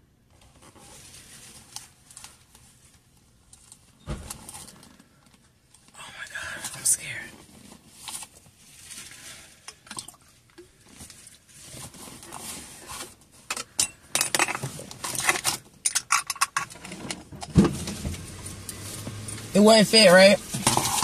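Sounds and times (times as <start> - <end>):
plastic bottles clicking and rattling: 13.4 - 18.2, 20.4 - 21.0.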